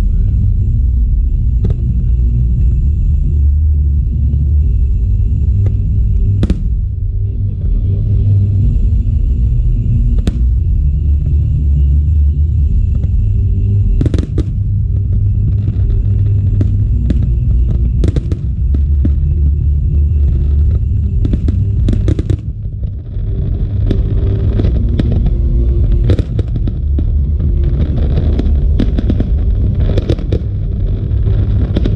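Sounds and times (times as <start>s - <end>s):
steady low rumble: 0.0s - 31.9s
fireworks crackling: 5.5s - 7.0s, 10.1s - 11.3s, 12.8s - 31.9s
fireworks bangs: 6.4s - 6.9s, 10.2s - 10.6s, 14.0s - 31.9s.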